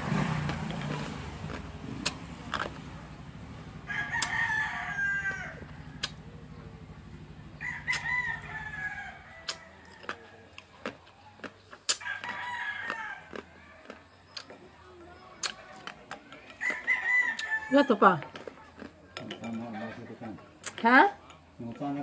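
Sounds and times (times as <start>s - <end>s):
ice being chewed: 0.5s - 2.9s, 9.4s - 22.0s
rooster crowing: 3.8s - 6.1s, 7.5s - 10.6s, 12.0s - 14.0s, 16.5s - 18.2s.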